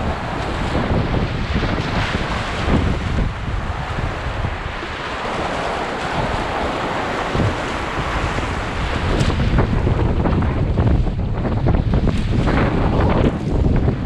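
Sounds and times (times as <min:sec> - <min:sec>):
whitewater rapids rushing: 0:00.0 - 0:10.8
paddle and wave splashes: 0:00.0 - 0:14.0
wind buffeting microphone: 0:00.0 - 0:14.0.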